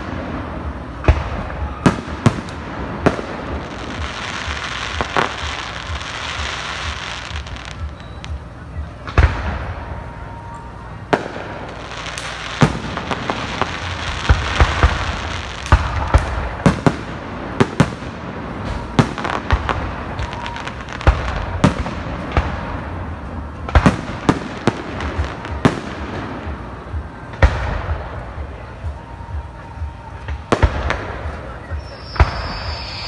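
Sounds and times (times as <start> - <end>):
fireworks bursting with sharp bangs: 0.0 - 33.0.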